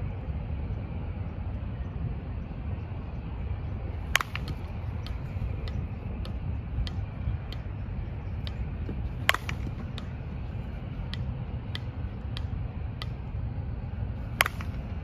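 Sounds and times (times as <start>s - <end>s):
low rumble: 0.0s - 15.0s
bat hitting ball crack: 4.0s - 7.7s, 8.4s - 10.2s, 14.2s - 15.0s
faint repeating tick: 11.0s - 13.2s.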